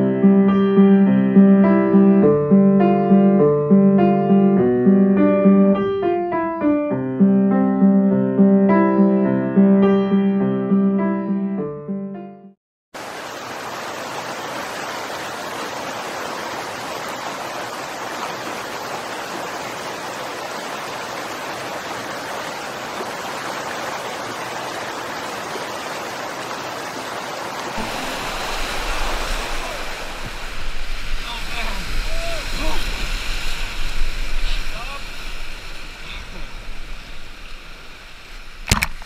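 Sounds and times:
river rapids rushing: 13.0 - 38.8
wind buffeting microphone: 27.8 - 38.6.

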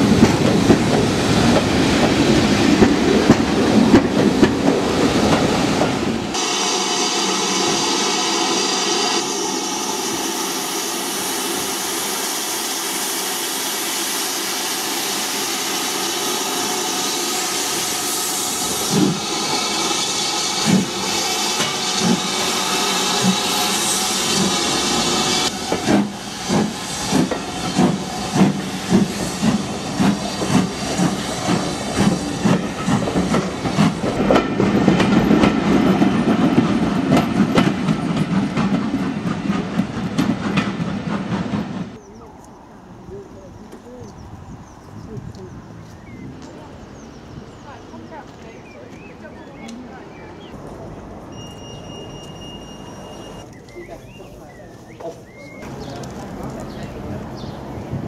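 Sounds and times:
steam locomotive chuffing: 0.0 - 42.1.

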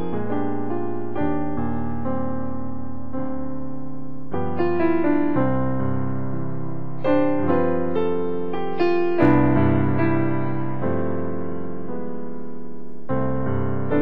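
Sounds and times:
slow keyboard chords: 0.0 - 14.0.

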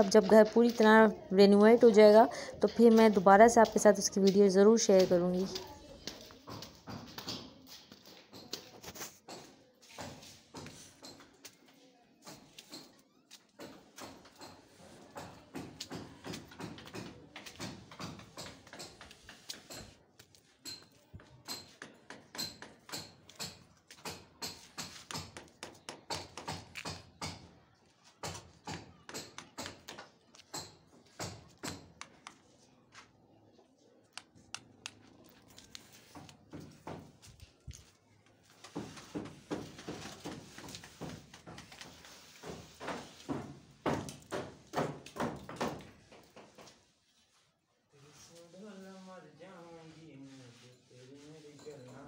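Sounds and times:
light tapping and knocking: 38.6 - 46.8.

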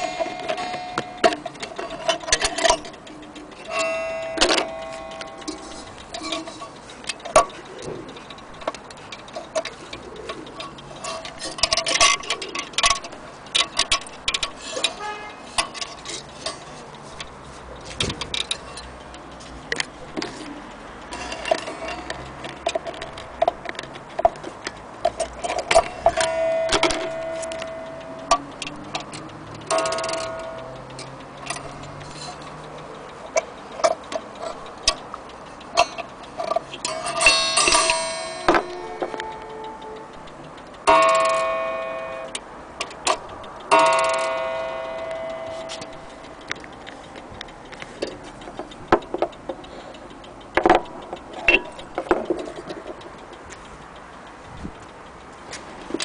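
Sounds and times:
short ringing tones: 0.0 - 1.3, 26.2 - 28.3, 37.1 - 40.3, 40.9 - 42.4
clicks and knocks from handling: 0.0 - 32.6, 50.6 - 53.7
clock ticking: 0.0 - 56.0.

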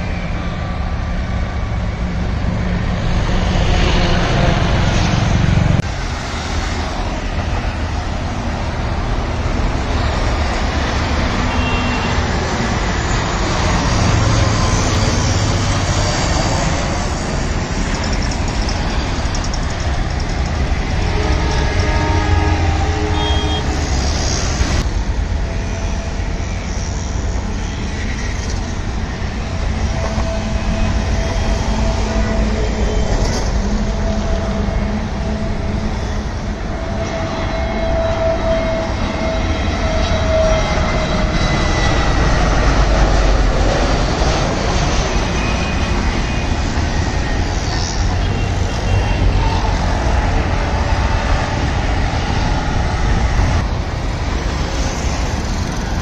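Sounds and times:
jet airliner rumble: 0.0 - 56.0.

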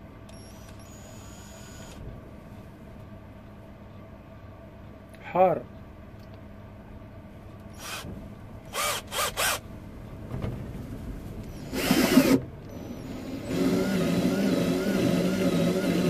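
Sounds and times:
cordless drill drilling wood: 0.4 - 2.0, 7.8 - 8.0, 8.7 - 9.6, 11.6 - 16.0.

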